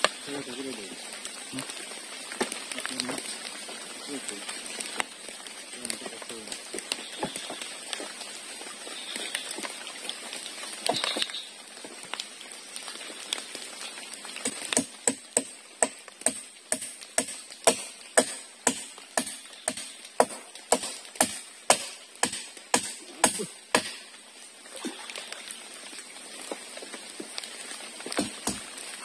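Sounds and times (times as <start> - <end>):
water splash: 16.3 - 26.2.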